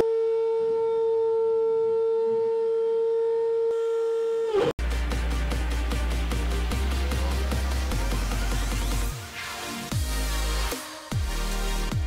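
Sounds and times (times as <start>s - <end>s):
electronic music with beat: 4.8s - 12.0s.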